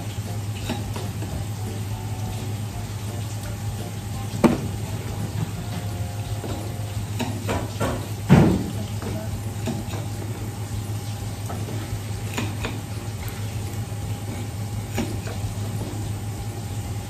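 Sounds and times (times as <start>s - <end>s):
steady low hum: 0.0s - 17.0s
knocks and clicks of cutting fish: 4.4s - 10.4s.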